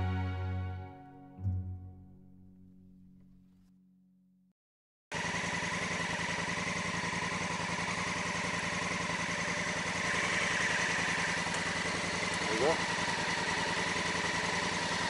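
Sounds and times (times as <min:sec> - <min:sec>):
motorcycle engine idling: 0:05.1 - 0:15.0.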